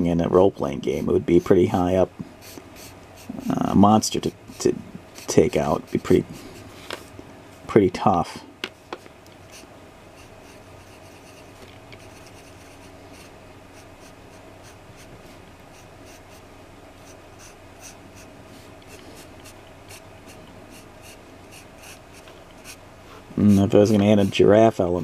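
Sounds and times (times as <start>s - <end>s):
faint steady hum: 0.0s - 25.0s
pencil scratching on paper: 4.5s - 6.6s, 10.2s - 15.1s, 15.7s - 16.4s, 17.0s - 18.3s, 18.9s - 22.8s, 23.4s - 24.6s.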